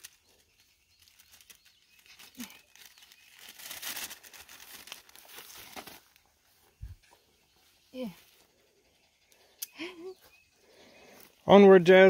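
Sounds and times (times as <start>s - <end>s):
paper bag crinkling: 0.0s - 6.2s.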